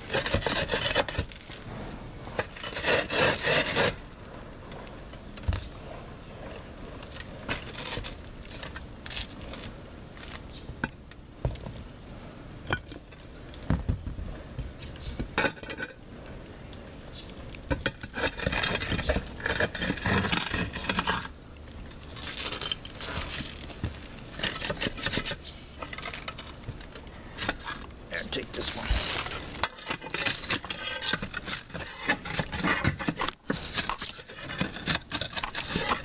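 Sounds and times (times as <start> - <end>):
roof tiles scraping and clinking: 0.0 - 4.1, 15.0 - 16.0, 17.2 - 27.9, 28.6 - 36.0.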